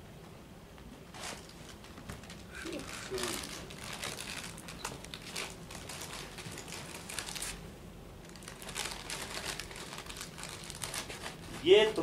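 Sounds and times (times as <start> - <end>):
crisp packet crinkling: 1.8 - 7.6, 8.2 - 12.0.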